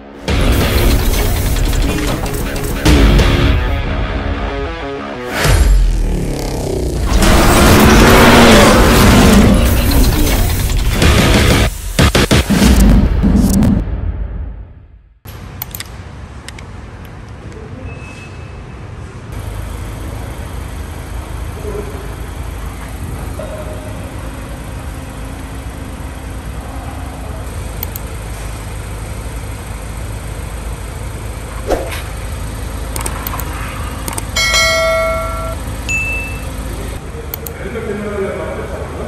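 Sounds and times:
bright bell-like ding: 34.4s - 36.6s.

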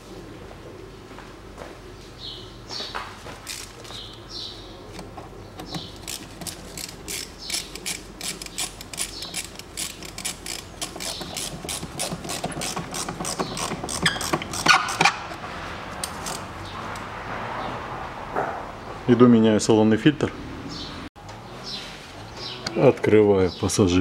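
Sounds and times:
ratcheting hand tool clicking: 5.6s - 15.4s, 16.0s - 16.5s.

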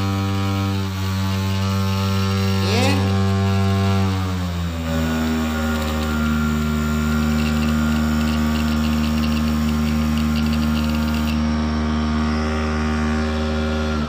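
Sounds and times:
electric motor humming: 0.0s - 14.0s
fast ticking: 7.1s - 11.4s.

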